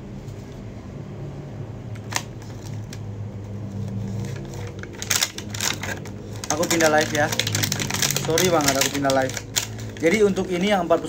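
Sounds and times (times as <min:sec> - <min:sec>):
steady low hum: 0:00.0 - 0:11.0
package clicks: 0:04.4 - 0:10.2.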